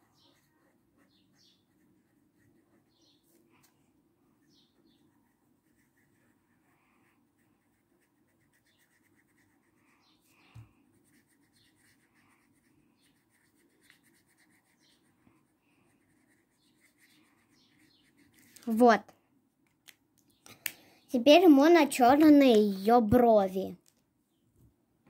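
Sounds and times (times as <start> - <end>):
marker scratching on paper: 0.0 - 3.8, 4.4 - 18.9.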